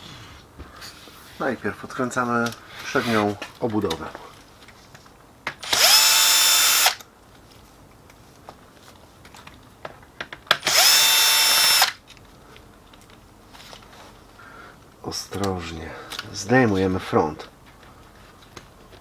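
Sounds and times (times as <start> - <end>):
cordless drill whining: 5.6 - 7.0, 10.6 - 12.0.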